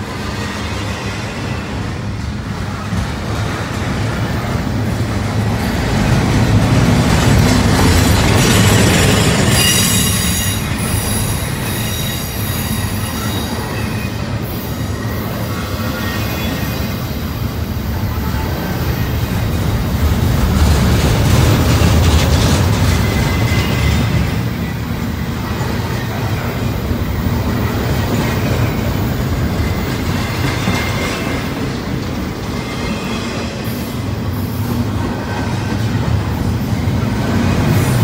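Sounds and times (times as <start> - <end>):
train wheels rumbling on rails: 0.0 - 38.0
high-pitched wheel squeal: 9.1 - 17.0.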